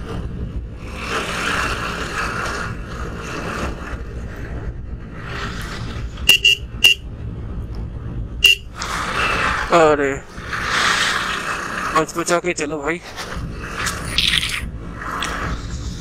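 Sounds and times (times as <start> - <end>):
motorcycle engine and wind: 0.0 - 16.0
horn beeps: 6.2 - 7.0, 8.4 - 8.7.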